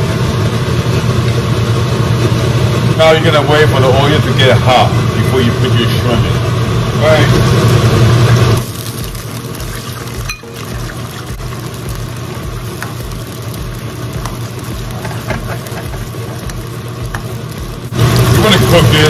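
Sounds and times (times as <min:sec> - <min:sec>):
shrimp sizzling in oil: 0:00.0 - 0:19.0.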